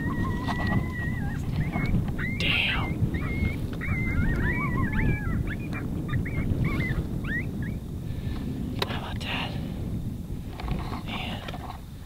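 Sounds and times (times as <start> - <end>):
coyotes yipping and howling: 0.0 - 8.1
wind rumble on microphone: 0.0 - 12.0.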